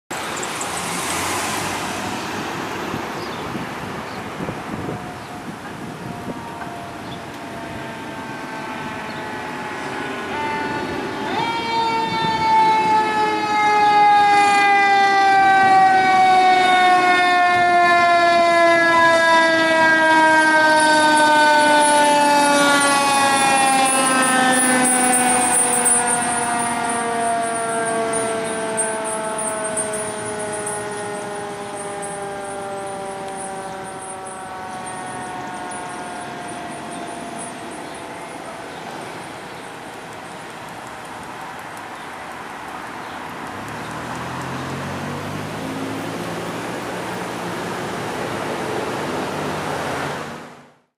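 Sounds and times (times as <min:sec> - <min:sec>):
passing traffic: 0:00.1 - 0:50.9
mechanical siren wailing: 0:04.4 - 0:38.7.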